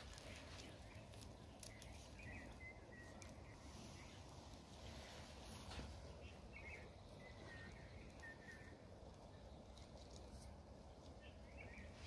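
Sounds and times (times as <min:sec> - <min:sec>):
faint outdoor ambience: 0:00.0 - 0:12.0
high bird chirps: 0:00.1 - 0:04.4, 0:06.1 - 0:08.8.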